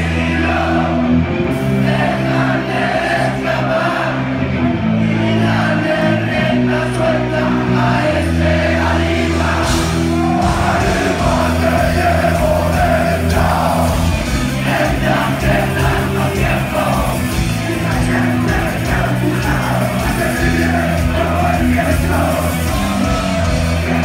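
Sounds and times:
punk rock band playing: 0.0s - 24.0s
person singing: 5.1s - 24.0s.

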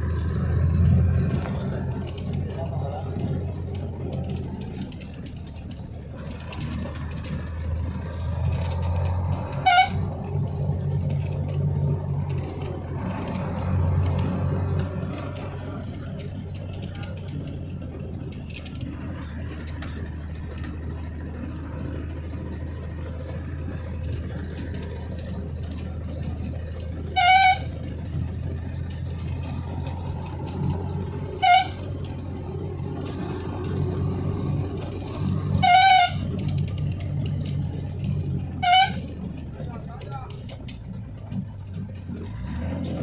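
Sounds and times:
vehicle engine running: 0.0s - 43.0s
vehicle horn toots: 9.6s - 10.0s, 27.1s - 27.8s, 31.4s - 31.9s, 35.6s - 36.3s, 38.6s - 39.1s.

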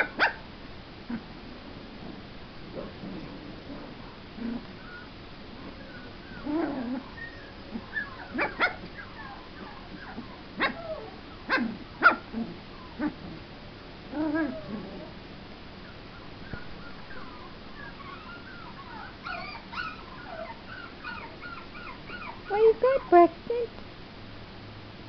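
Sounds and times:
puppy yipping and barking: 0.0s - 0.4s, 5.8s - 12.3s, 16.4s - 23.3s
puppy whining: 4.0s - 13.4s, 14.1s - 15.2s, 15.8s - 23.7s.

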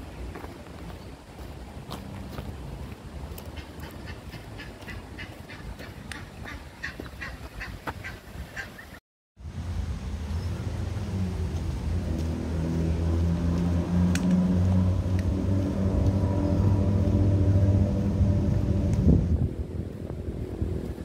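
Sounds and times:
vehicle engine humming: 9.4s - 21.0s.

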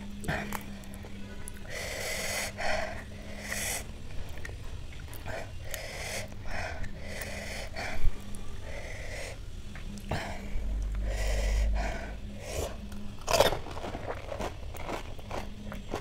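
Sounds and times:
person breathing noisily and sniffing: 1.6s - 3.9s, 5.2s - 12.8s.

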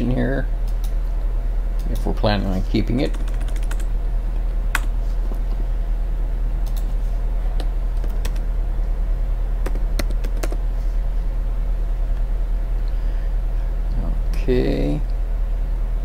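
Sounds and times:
steady low hum: 0.0s - 16.0s
computer keyboard keys clicking: 3.1s - 3.9s, 6.6s - 6.9s, 8.0s - 8.4s, 9.6s - 10.6s.

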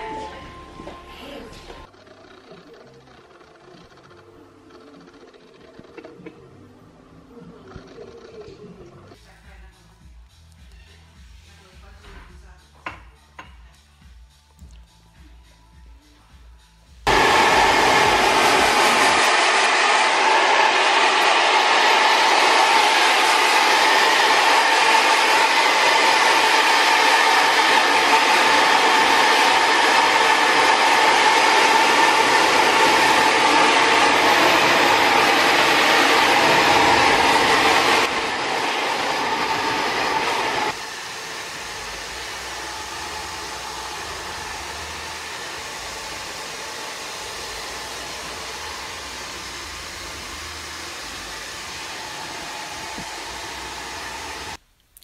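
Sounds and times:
hair dryer blowing: 0.0s - 1.9s, 17.1s - 54.6s.

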